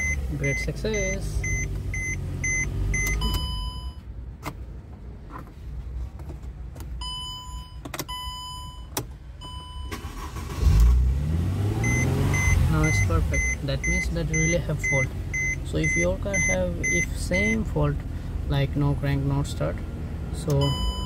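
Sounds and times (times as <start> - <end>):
dashboard warning beep: 0.0 - 4.1, 7.0 - 10.6, 11.8 - 17.7, 20.5 - 21.0
car engine running: 0.0 - 6.9, 9.9 - 21.0
engine cranking and revving: 9.9 - 16.7.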